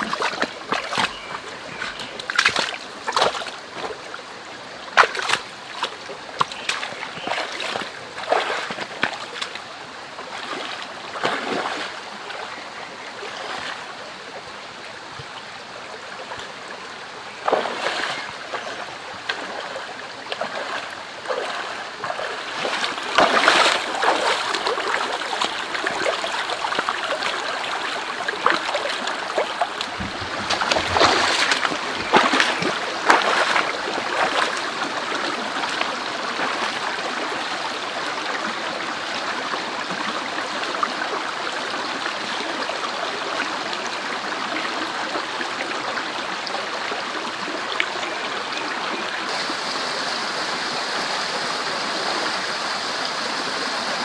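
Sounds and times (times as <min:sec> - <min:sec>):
boots splashing through water: 0:00.0 - 0:04.2, 0:04.9 - 0:09.7, 0:10.3 - 0:12.5, 0:17.4 - 0:37.6
stream running over rocks: 0:00.0 - 0:54.0.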